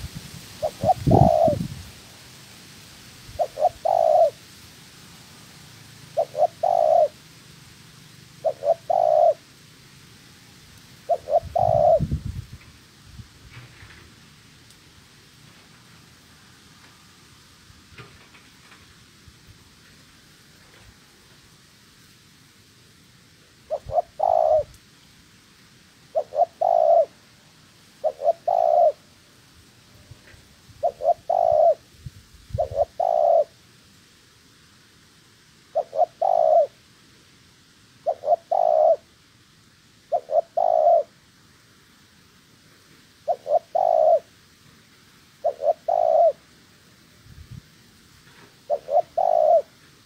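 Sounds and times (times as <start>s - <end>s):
dove cooing: 0.6s - 1.8s, 3.3s - 4.4s, 6.1s - 7.2s, 8.4s - 9.4s, 11.0s - 12.2s, 23.7s - 24.8s, 26.1s - 27.2s, 28.0s - 29.1s, 30.8s - 31.9s, 32.5s - 33.6s, 35.7s - 36.8s, 38.0s - 39.1s, 40.1s - 41.2s, 43.2s - 44.3s, 45.4s - 46.5s, 48.6s - 49.8s.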